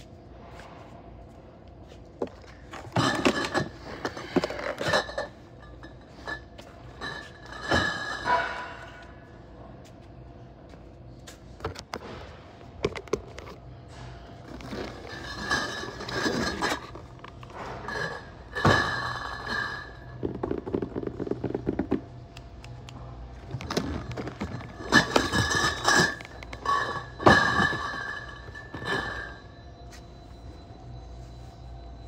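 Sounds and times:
glass bottles rattling: 3.0s - 8.6s, 14.4s - 22.1s, 23.5s - 29.4s.

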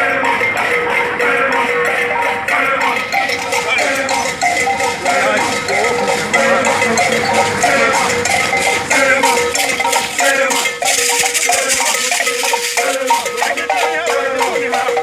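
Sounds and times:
steady rhythmic beat: 0.0s - 15.0s
group chanting in unison: 1.2s - 11.9s.

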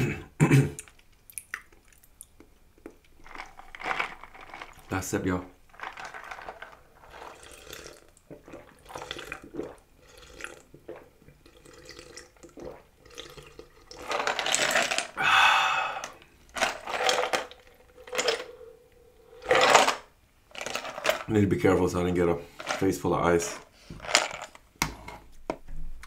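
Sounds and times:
ice rattling in plastic cup: 3.2s - 8.1s, 13.3s - 15.2s, 16.5s - 18.5s, 19.4s - 21.3s
gulps and slurps: 5.8s - 14.4s.

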